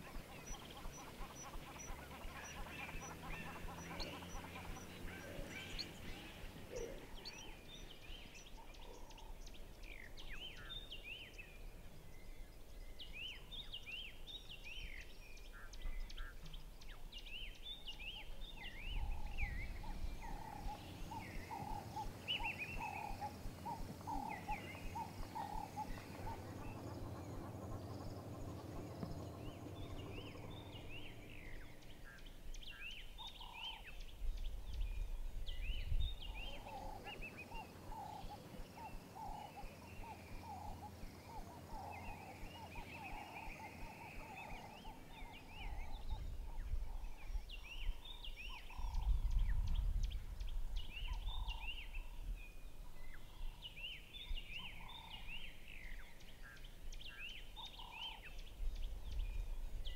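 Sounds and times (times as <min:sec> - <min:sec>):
low rapidly repeated bird calls: 0:00.0 - 0:59.9
birds chirping and whistling: 0:12.8 - 0:59.9
low rumble: 0:18.8 - 0:33.4.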